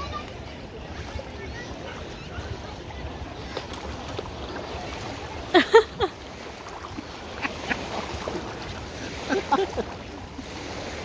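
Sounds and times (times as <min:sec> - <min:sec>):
lake water lapping: 0:00.0 - 0:11.0.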